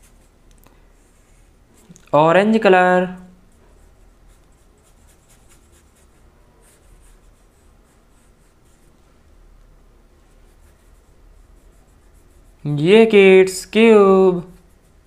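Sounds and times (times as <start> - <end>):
low steady hum: 0.0 - 15.0
paintbrush swishing on paper: 3.4 - 9.3, 10.2 - 12.7, 14.3 - 15.0.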